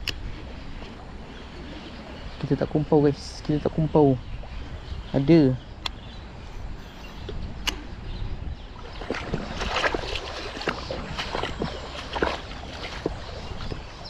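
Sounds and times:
water sloshing and splashing: 8.6s - 14.0s.

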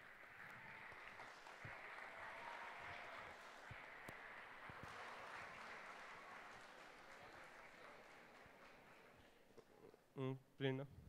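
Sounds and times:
faint audience applause: 0.0s - 10.0s.

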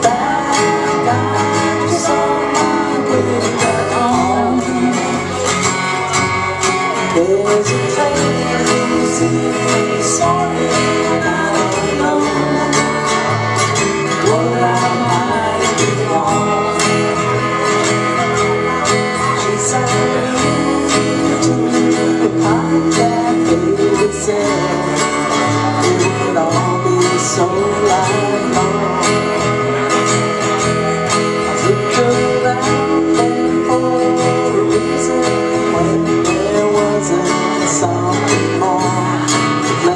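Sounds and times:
woman singing: 0.0s - 5.5s, 7.1s - 13.5s, 18.7s - 29.8s
acoustic guitar strumming: 0.0s - 39.9s
electric guitar line: 0.0s - 39.9s.

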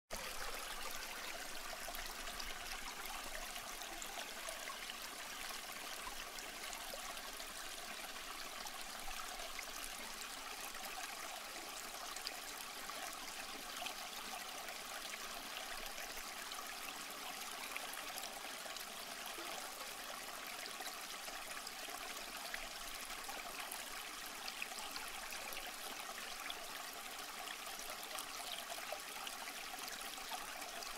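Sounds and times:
stream flowing: 0.1s - 30.9s.

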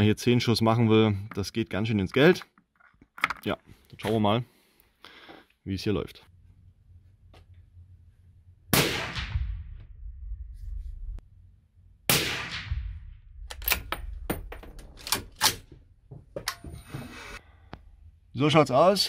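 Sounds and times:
suppressed rifle shots: 8.7s - 9.5s, 12.1s - 12.9s.

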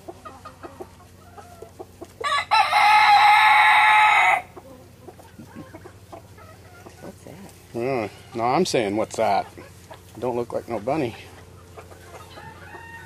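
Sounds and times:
soft chicken clucking: 0.0s - 2.3s, 3.2s - 13.0s
rooster crowing: 2.2s - 4.5s, 12.2s - 13.0s.

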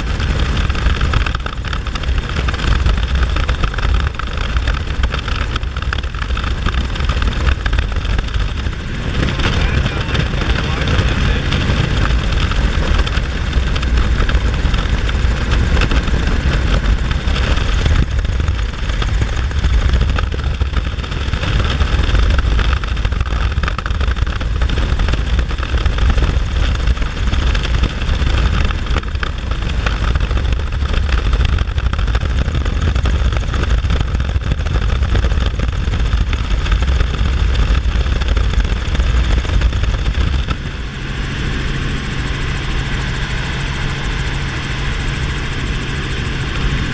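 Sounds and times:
helicopter engine and rotor drone: 0.0s - 46.9s
wind rushing through cabin: 0.0s - 46.9s.

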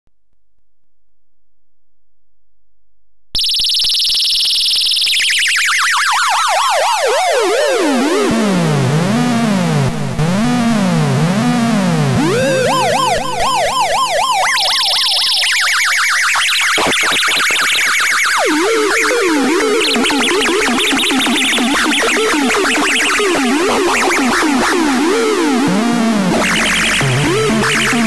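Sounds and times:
toy siren with echo: 3.4s - 8.1s, 12.2s - 25.8s.

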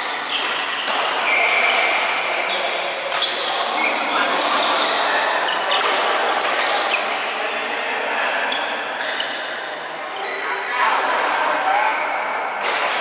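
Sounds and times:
shoes squeaking on court floor: 0.0s - 7.3s, 8.3s - 10.6s
badminton rackets hitting shuttlecocks: 0.2s - 7.2s, 12.6s - 13.0s.

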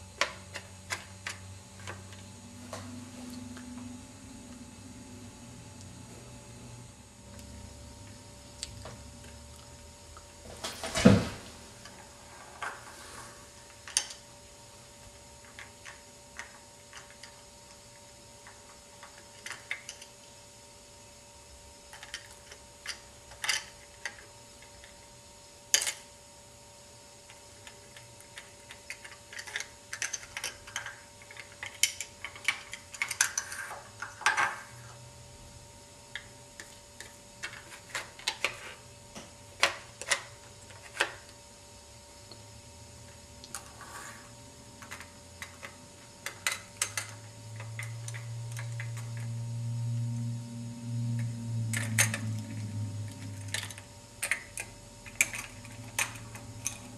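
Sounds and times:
low hum: 0.0s - 10.5s, 42.0s - 56.9s.

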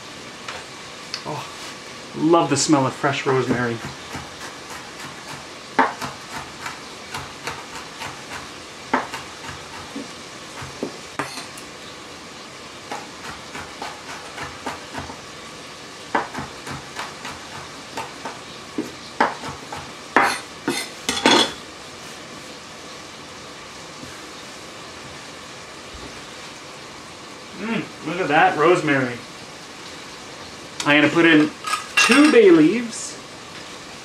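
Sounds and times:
knife chopping on wooden board: 3.4s - 11.4s, 12.9s - 15.2s, 16.1s - 21.4s.

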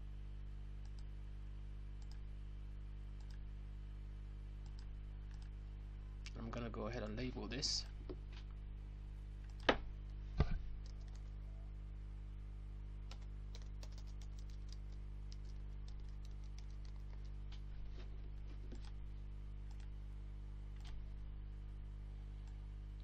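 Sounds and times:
steady electrical hum: 0.0s - 23.0s
typing on computer keyboard: 10.8s - 11.3s, 13.1s - 17.3s.

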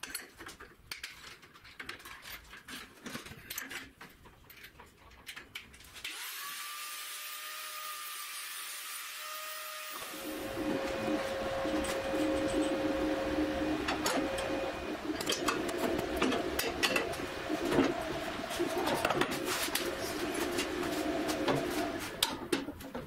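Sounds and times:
clicks and knocks of parts: 0.0s - 6.0s, 13.8s - 23.0s.

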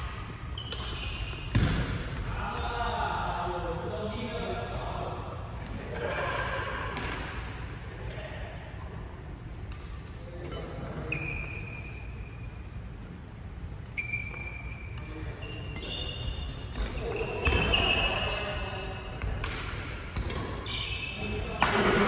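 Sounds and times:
rackets hitting shuttlecock: 0.0s - 2.2s, 19.2s - 20.8s, 21.4s - 22.0s
shoes squeaking on court floor: 0.0s - 2.3s, 9.6s - 22.0s.

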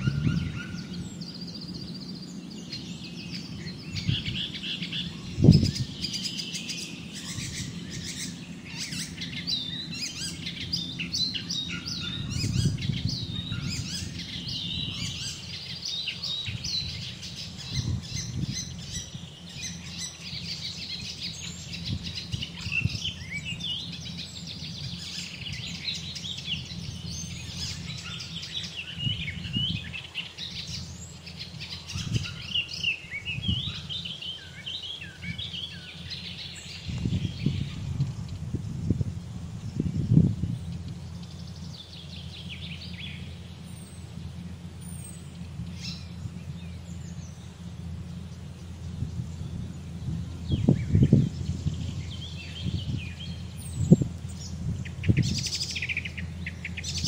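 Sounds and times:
low rumble: 0.0s - 32.5s, 35.3s - 57.0s
small birds chirping and singing: 0.0s - 57.0s.

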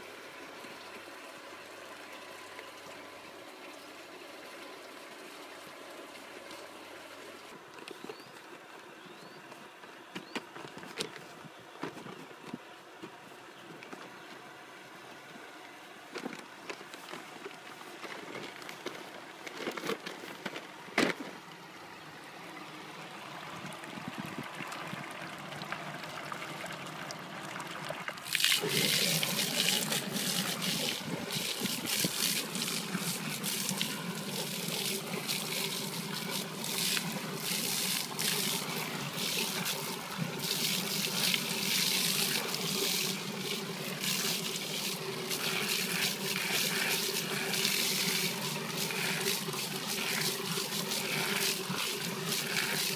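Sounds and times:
pump humming: 0.0s - 52.9s
hose spraying water: 28.2s - 52.9s.

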